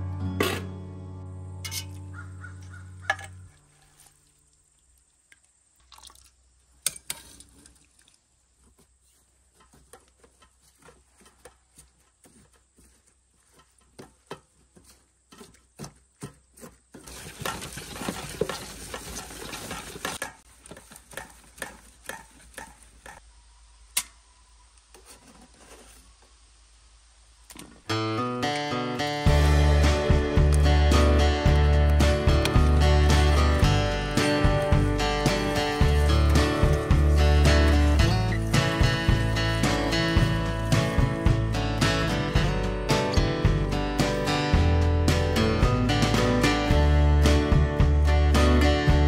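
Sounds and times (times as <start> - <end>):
metal utensils scraping a pot: 1.6 - 2.0
wet mashing through a sieve: 15.3 - 22.7, 32.4 - 39.4.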